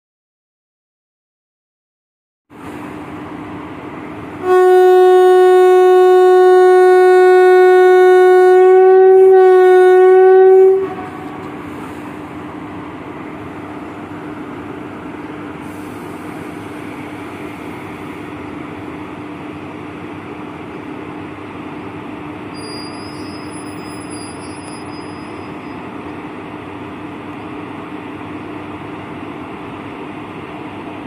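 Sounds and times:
locomotive humming: 2.5 - 31.0
locomotive horn blast: 4.4 - 11.7.

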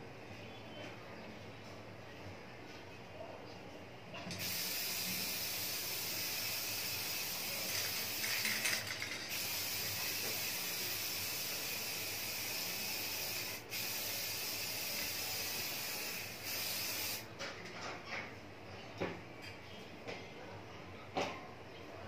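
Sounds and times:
aerosol spray can hissing: 4.3 - 17.3.

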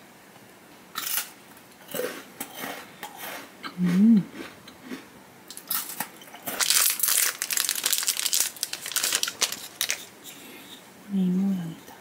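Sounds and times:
person humming: 3.7 - 4.3
plastic wrapper crinkling: 5.6 - 10.1.

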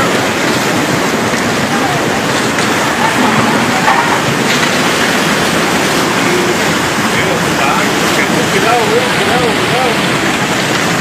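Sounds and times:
wood and debris cracking: 0.0 - 7.6
mudflow rushing: 0.0 - 11.0.

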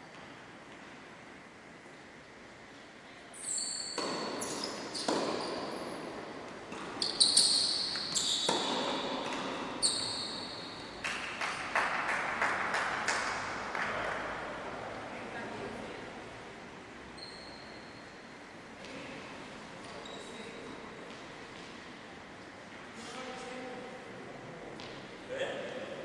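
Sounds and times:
shoe squeaks on court floor: 3.4 - 6.0, 6.7 - 11.0, 17.2 - 18.2, 19.9 - 20.7
racket hitting tennis ball: 4.0 - 5.8, 8.4 - 9.8
ball bouncing: 6.7 - 9.6.

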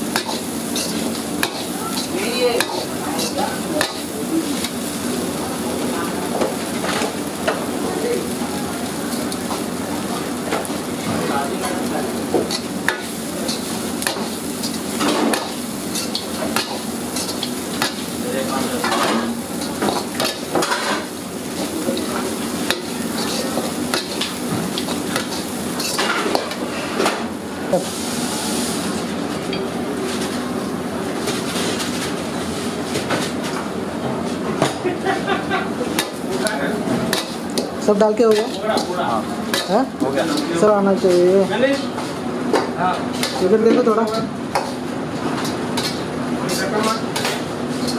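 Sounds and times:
light sizzling: 0.0 - 29.0, 35.3 - 42.2.

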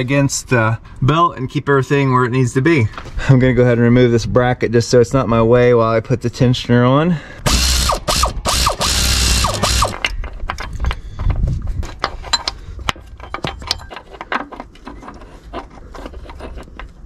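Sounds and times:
air ratchet running: 7.4 - 10.0.

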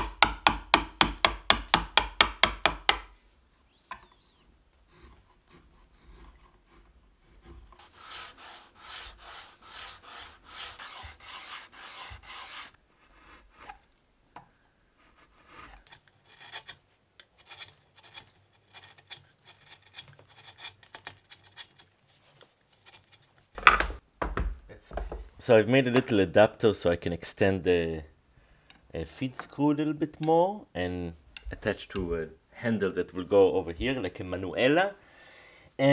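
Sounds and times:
chisel paring wood: 0.0 - 3.2.

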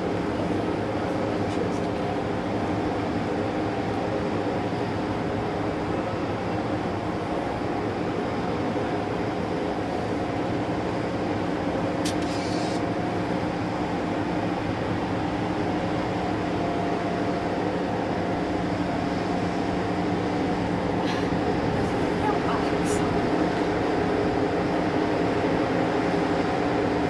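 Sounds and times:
diesel engines droning: 0.0 - 27.0
short hiss: 12.0 - 12.8.

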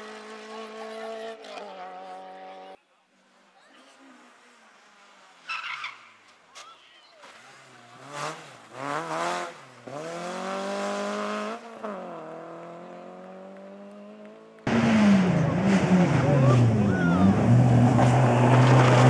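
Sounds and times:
rally car engine revving: 0.0 - 2.8, 7.3 - 19.0.

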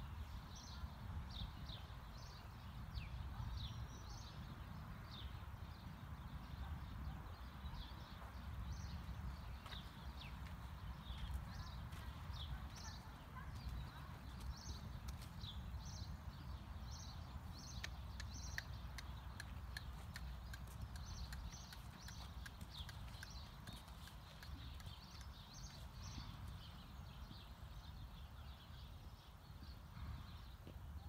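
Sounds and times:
horse hooves on dirt: 8.0 - 16.2, 17.4 - 27.5
sharp clicks: 17.6 - 25.4.

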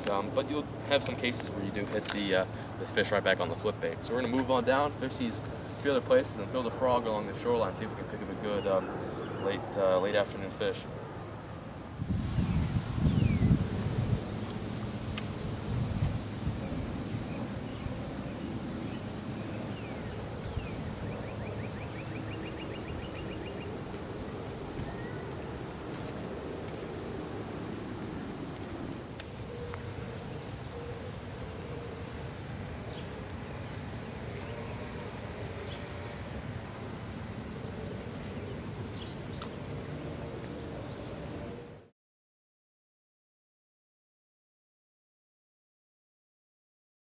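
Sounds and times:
wind rumble on microphone: 11.9 - 30.6
small birds chirping: 12.3 - 13.6, 15.9 - 27.7, 29.3 - 32.0, 36.7 - 39.8.

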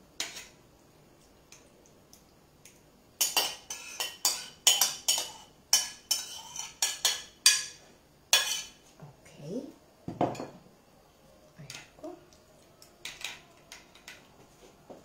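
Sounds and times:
spoon scraping ceramic plate: 3.2 - 7.7, 8.4 - 8.8.

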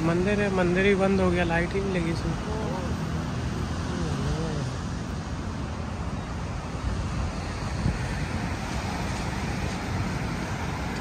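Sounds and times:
sea surf breaking: 0.0 - 11.0
wind buffeting microphone: 4.2 - 11.0.

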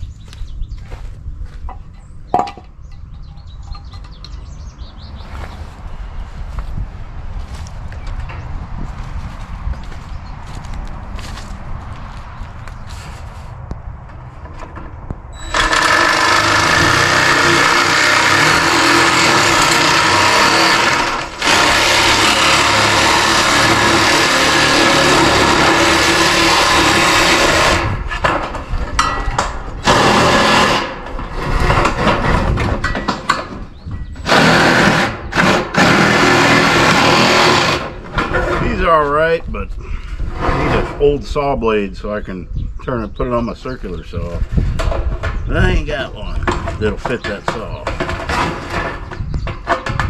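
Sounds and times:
power shear cutting steel panel: 15.4 - 28.0, 29.8 - 32.5, 34.2 - 38.7.

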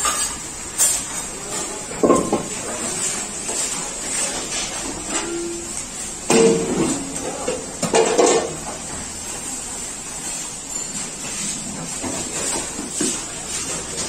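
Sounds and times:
steel pots and plates clattering: 0.0 - 2.5, 6.3 - 8.6
kitchen background noise: 0.0 - 14.0.

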